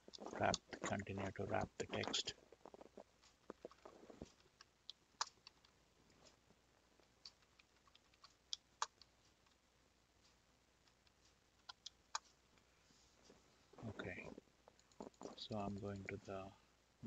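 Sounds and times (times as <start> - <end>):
keyboard and mouse clicks: 3.2 - 5.8, 7.2 - 9.6, 10.8 - 12.4.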